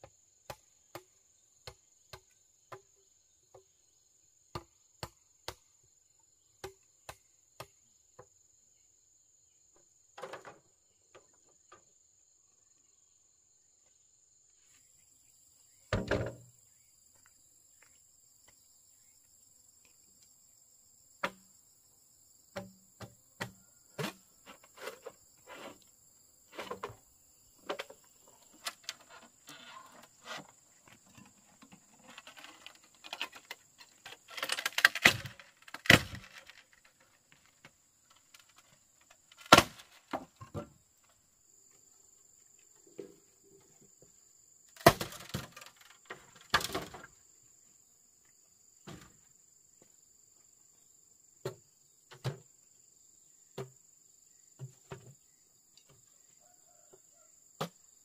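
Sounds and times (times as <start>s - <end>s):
knocks and thuds of manual work: 15.9s - 16.5s, 22.5s - 25.7s, 27.6s - 36.5s, 39.4s - 40.8s, 44.8s - 47.1s, 48.8s - 49.2s, 54.6s - 55.2s.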